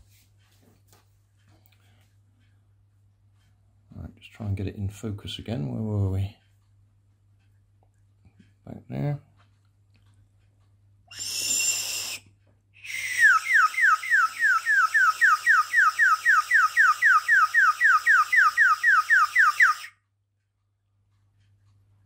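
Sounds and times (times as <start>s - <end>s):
warbling water bird whistle: 11.1s - 12.2s, 12.8s - 20.0s.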